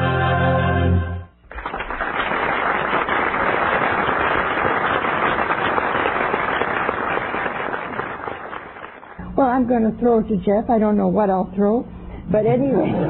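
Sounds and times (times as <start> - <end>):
audience applauding: 1.5 - 9.2.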